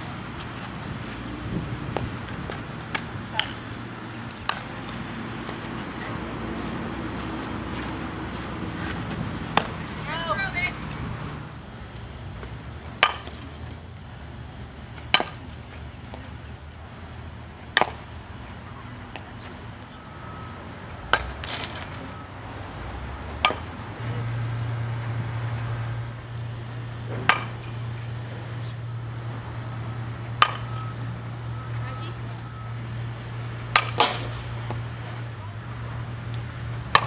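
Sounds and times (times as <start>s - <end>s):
bat cracking softballs: 1.9s - 13.8s, 14.9s - 16.2s, 17.6s - 18.2s, 20.9s - 22.1s, 22.9s - 25.7s, 27.1s - 28.2s, 30.2s - 30.9s, 33.5s - 35.4s, 36.2s - 37.0s.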